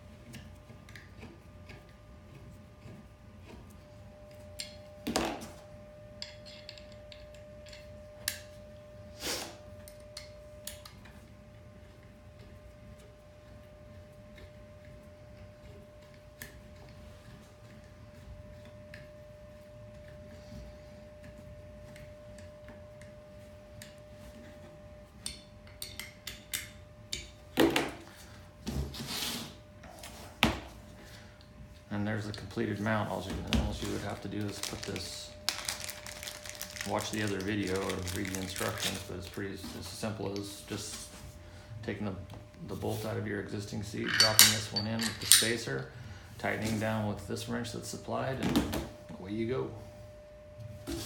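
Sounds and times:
faint steady hum: 0.0 - 51.0
metal tool clattering: 44.0 - 45.7.

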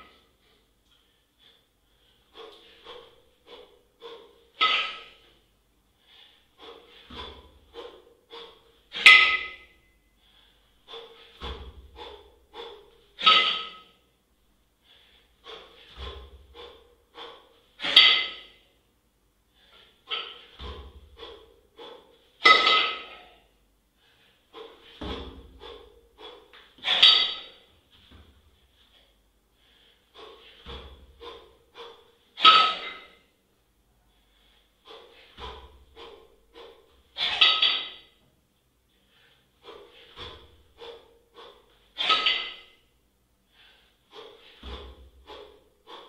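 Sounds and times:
person breathing forcefully: 0.0 - 18.8, 19.4 - 38.2, 38.9 - 46.0
kettlebell thud: 7.0 - 9.8, 11.2 - 14.0, 15.4 - 18.6, 20.1 - 21.5, 22.4 - 23.3, 24.6 - 28.4, 30.2 - 31.6, 32.4 - 33.1, 35.3 - 36.6, 39.9 - 41.1, 44.4 - 45.6
loud sharp exhale: 23.0 - 27.6, 29.6 - 33.3, 43.5 - 46.0.

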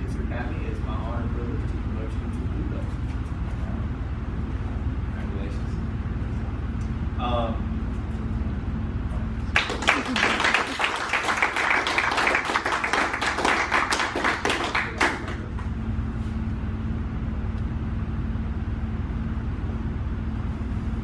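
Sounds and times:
steady low hum: 0.0 - 21.0
small group clapping: 9.5 - 15.7.

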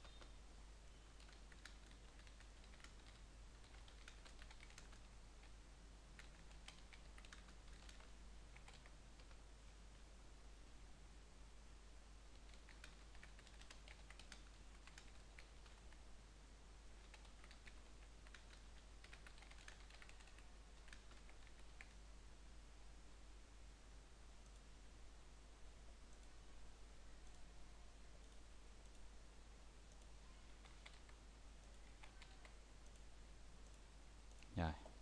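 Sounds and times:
faint keyboard typing: 0.0 - 10.0, 12.2 - 16.2, 16.8 - 22.1, 24.4 - 24.7, 25.9 - 26.4, 27.1 - 35.0.

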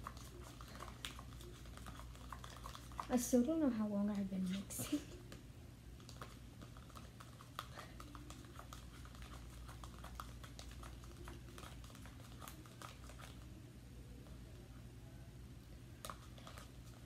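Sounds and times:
spoon stirring sticky slime: 0.0 - 5.0, 6.0 - 13.5.

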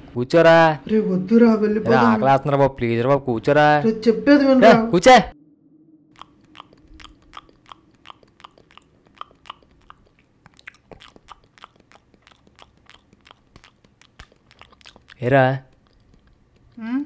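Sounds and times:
people crunching crisp food: 6.2 - 16.8.

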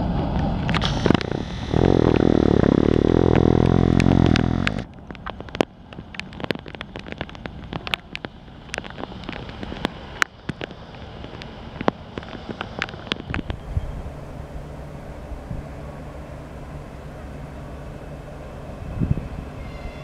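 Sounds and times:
loud low drone: 0.0 - 4.9, 12.5 - 20.0
distant freight train rumble: 0.0 - 20.0
heavy rain: 0.0 - 20.0
raindrops ticking on microphone: 0.3 - 14.0.

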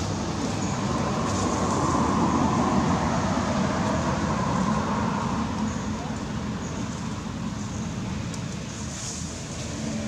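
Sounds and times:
road traffic noise: 0.0 - 10.0.

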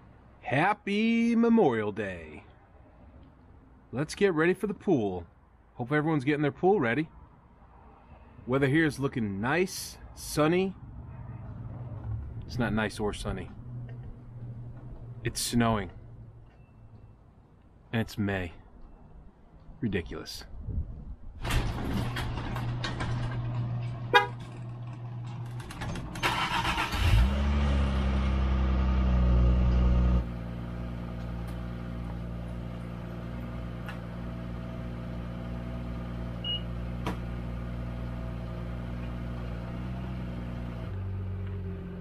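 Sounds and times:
car engine starting and idling: 21.4 - 42.0.

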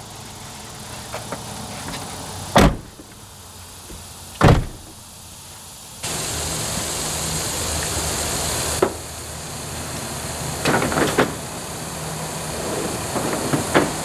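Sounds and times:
steady hiss: 0.0 - 14.0
gear knocking in truck bed: 3.9 - 5.0, 12.6 - 14.0.

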